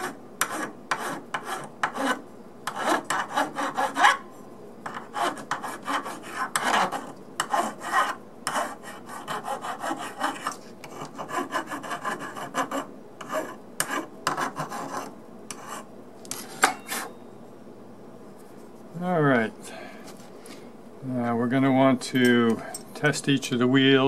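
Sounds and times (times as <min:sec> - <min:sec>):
file rasping on metal: 0:00.0 - 0:04.2, 0:04.8 - 0:15.9.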